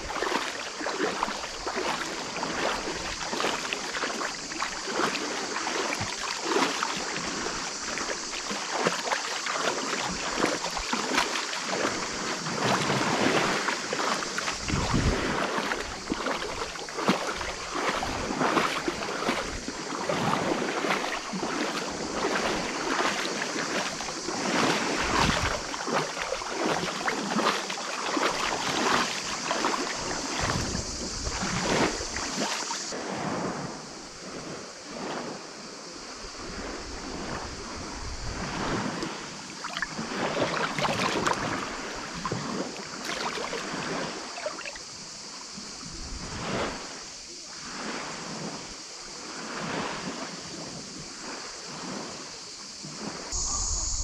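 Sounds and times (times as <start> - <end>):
small waves lapping: 0.0 - 53.6
wind on microphone: 14.3 - 23.0, 24.1 - 26.0, 28.6 - 42.7, 45.6 - 47.0, 52.9 - 54.0
steady high hiss: 50.8 - 54.0.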